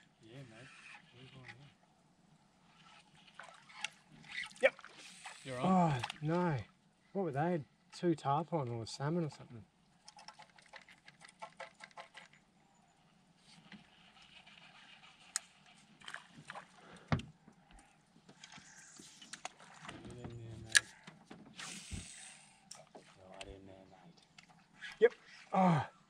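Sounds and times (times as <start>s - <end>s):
water against boat hull: 13.5s - 22.2s.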